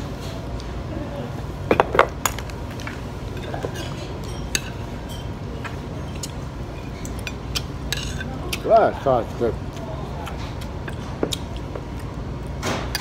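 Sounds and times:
low background hum: 0.0s - 13.0s
spoon and chopsticks clinking on plate: 3.4s - 5.4s.

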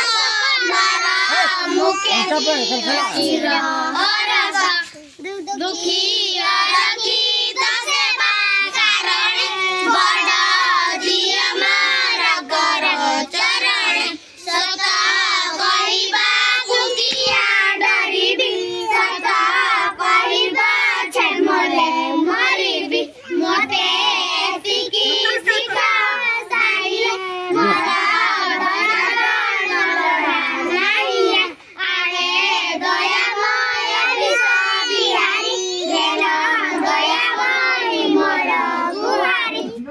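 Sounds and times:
children singing a prayer: 0.0s - 39.9s.

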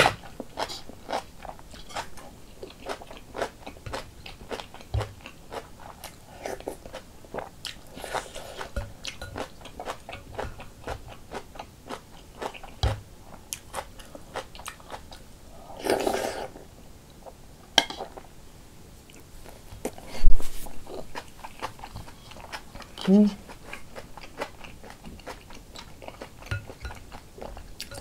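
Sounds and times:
person chewing food: 0.0s - 16.6s, 19.1s - 28.0s
slurp from spoon: 15.8s - 16.6s.

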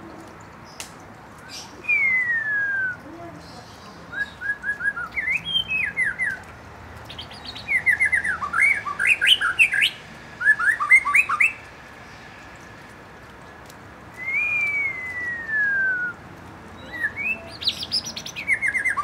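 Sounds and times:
bird singing whistled notes: 1.4s - 6.4s, 7.1s - 11.6s, 14.1s - 16.2s, 16.8s - 19.0s.

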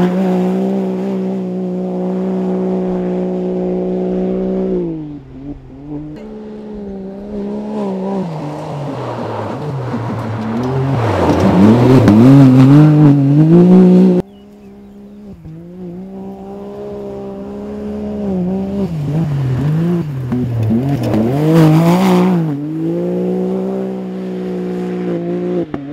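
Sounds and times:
off-road car engine revving: 0.0s - 25.9s.

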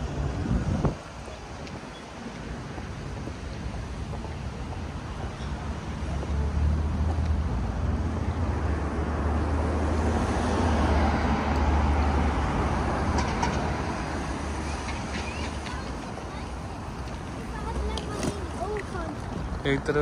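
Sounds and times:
traffic engine rumble: 0.0s - 20.0s
vehicle passing: 5.5s - 20.0s.

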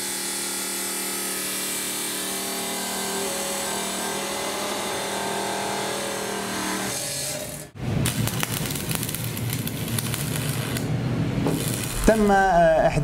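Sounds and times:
cut-off saw grinding steel pipe: 0.0s - 7.7s
arc welder crackling buzz: 0.0s - 12.5s.

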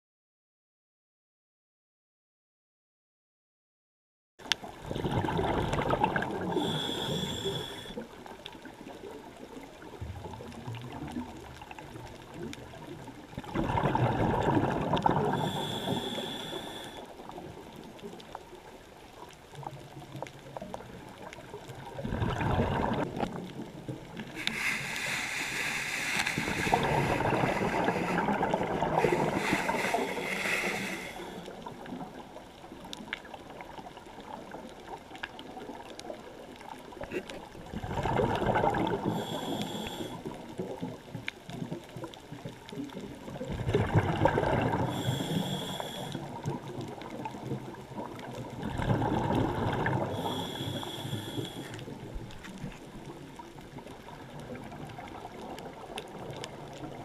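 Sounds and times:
underwater bubbling: 4.4s - 57.0s
diver breathing through regulator: 6.4s - 8.0s, 15.2s - 17.2s, 24.3s - 31.7s, 38.8s - 40.4s, 44.7s - 46.4s, 49.9s - 52.0s.

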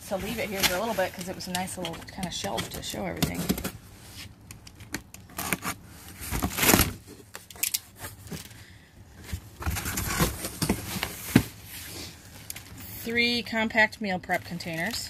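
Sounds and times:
box cutter slitting tape: 5.1s - 7.0s.

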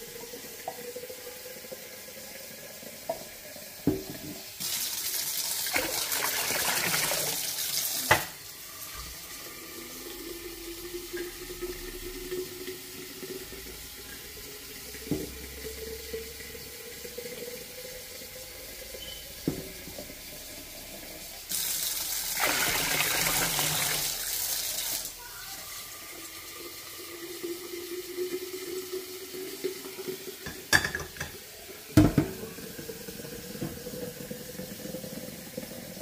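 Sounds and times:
tap water splashing into basin: 3.0s - 9.2s, 11.0s - 15.8s, 19.4s - 20.2s, 21.6s - 25.0s, 30.0s - 34.3s.

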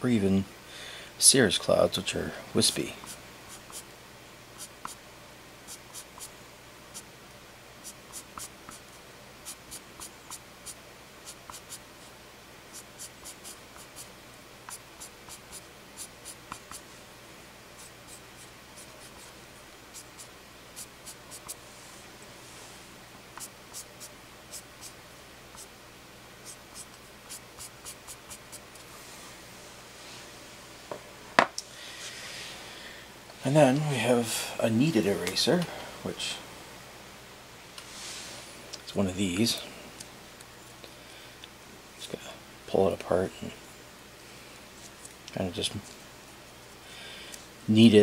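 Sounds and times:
eraser scratching on paper: 3.0s - 3.9s, 4.6s - 5.0s, 5.7s - 6.3s, 7.8s - 11.8s, 12.7s - 14.1s, 14.7s - 16.8s, 17.8s - 21.6s, 23.4s - 25.7s, 26.4s - 28.6s.

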